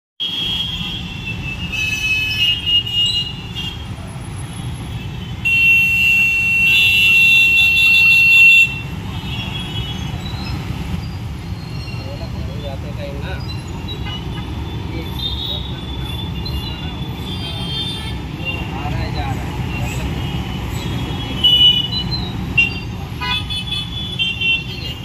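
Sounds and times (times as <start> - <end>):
vehicle horns honking: 0.2 - 4.0, 4.6 - 10.2, 13.8 - 19.0, 19.9 - 25.0
idling engines rumbling: 2.5 - 25.0.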